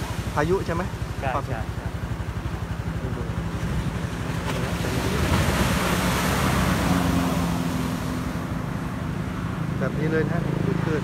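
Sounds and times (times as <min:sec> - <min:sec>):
surf breaking over seawall: 0:00.0 - 0:08.5
low engine hum: 0:00.0 - 0:11.0.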